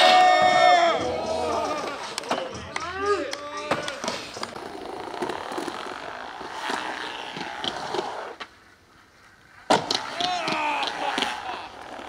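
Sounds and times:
skateboard wheels rolling on wood: 3.6 - 12.0
skateboard slapping on wood: 9.6 - 11.6.

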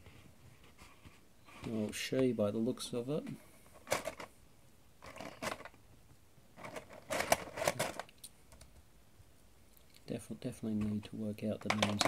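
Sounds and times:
plastic miniatures clicking and rattling: 6.6 - 8.7, 11.6 - 12.0.

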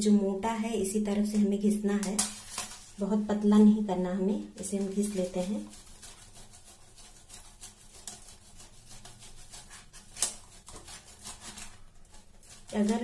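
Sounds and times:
cheese grating on metal grater: 4.5 - 13.0.

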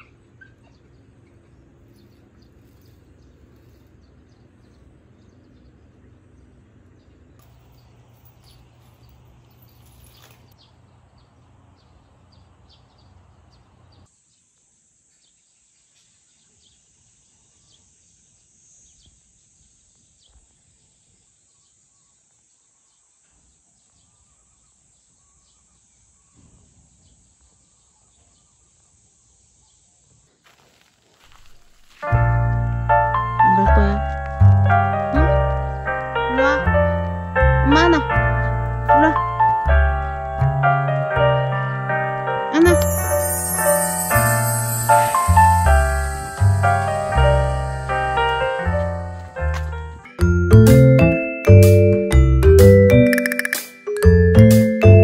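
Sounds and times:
high-pitched insect drone: 42.6 - 49.0.

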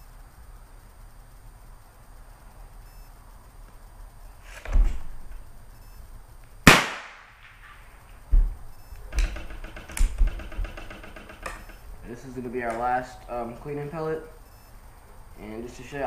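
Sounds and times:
pellet gun crack: 6.6 - 7.6.

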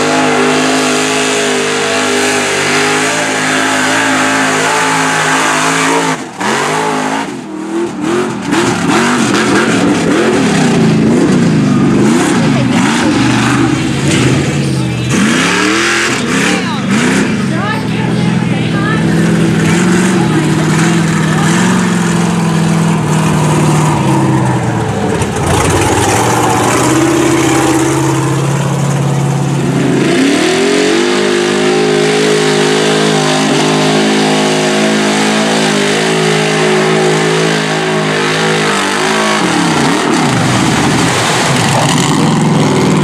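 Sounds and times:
truck engine revving: 0.0 - 43.0.

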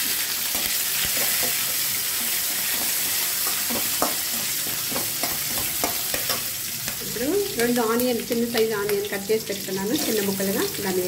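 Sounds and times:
spices sizzling in hot oil: 0.0 - 11.0
ladle scraping and tapping pan: 0.5 - 7.0.

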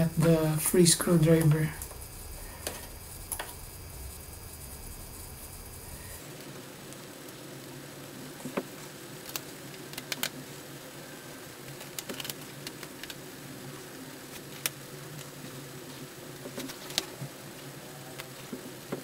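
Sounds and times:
steady low hum: 0.0 - 9.6.

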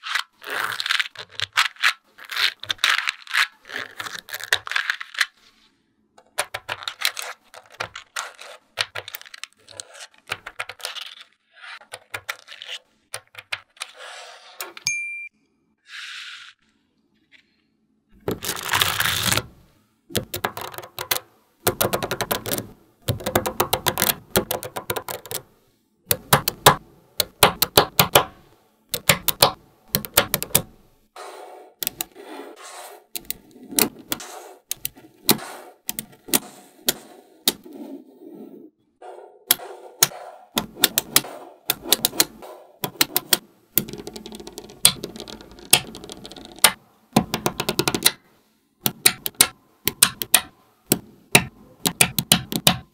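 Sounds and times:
magnetic balls clicking together: 20.1 - 25.4, 28.9 - 30.7, 40.0 - 48.2, 48.8 - 52.9.

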